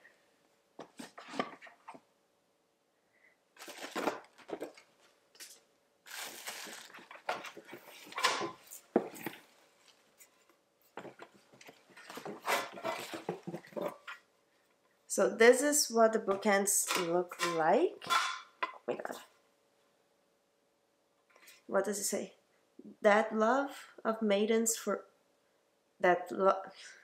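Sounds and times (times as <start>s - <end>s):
packaging rustling and crinkling: 3.6s - 10.4s, 11.0s - 14.1s.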